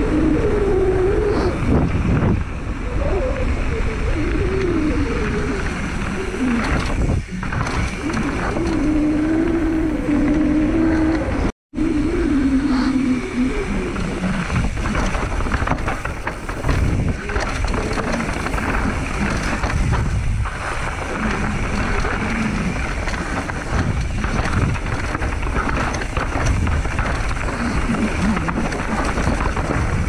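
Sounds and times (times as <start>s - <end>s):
bike tyres rolling over rock: 0.0s - 11.5s, 13.6s - 30.0s
wind buffeting microphone: 0.0s - 30.0s
bike clattering and knocking: 14.5s - 30.0s.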